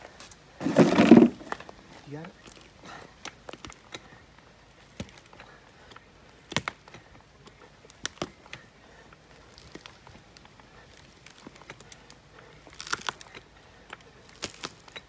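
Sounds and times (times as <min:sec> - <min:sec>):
tree stump cracking: 0:00.6 - 0:01.7, 0:12.6 - 0:13.4, 0:14.2 - 0:15.0.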